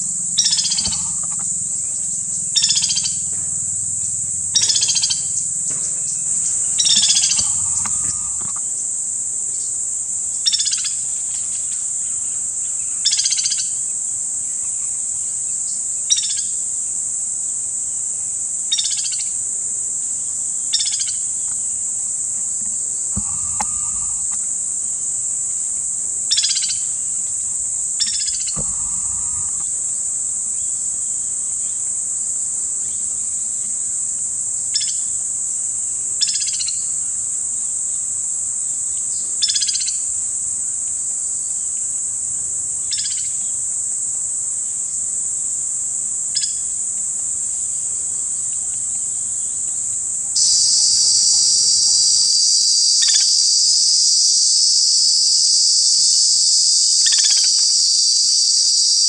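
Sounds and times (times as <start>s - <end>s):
woodpecker trilled calls: 0.0s - 8.8s, 23.1s - 24.5s, 28.0s - 29.8s
high-pitched insect drone: 0.0s - 14.8s, 18.7s - 35.2s, 48.7s - 59.0s.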